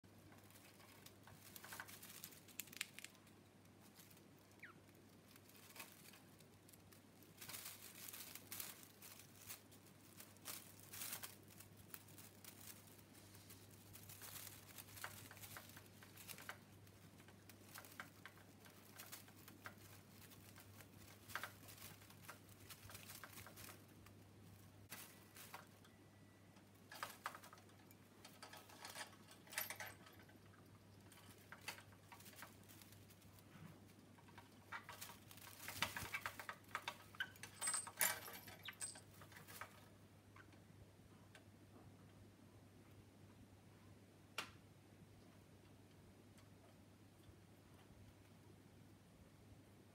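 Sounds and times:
bird chewing toy crinkling: 0.1s - 40.0s.

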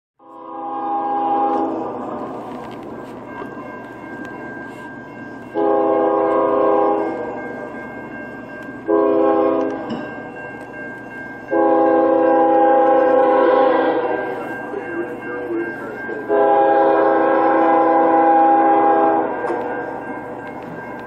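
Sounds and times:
model train horn blasts: 0.2s - 2.1s, 5.6s - 7.4s, 8.9s - 9.9s, 11.5s - 14.3s, 16.3s - 19.7s.

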